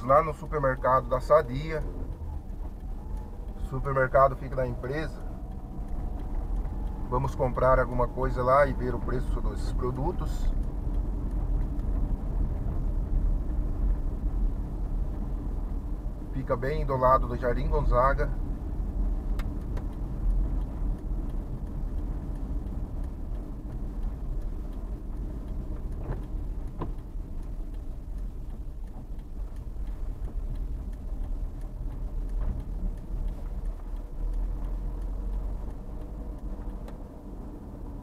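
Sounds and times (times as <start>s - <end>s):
car engine and tyre rumble: 0.0s - 38.0s.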